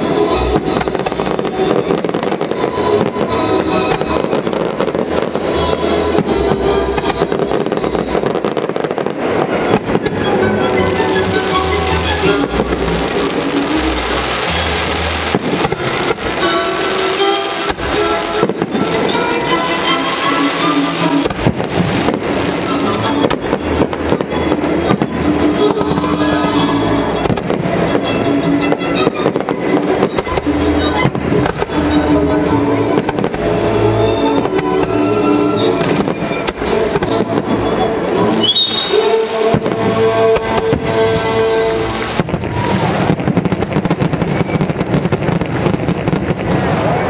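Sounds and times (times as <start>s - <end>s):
fireworks shells bursting: 33.0s - 47.0s.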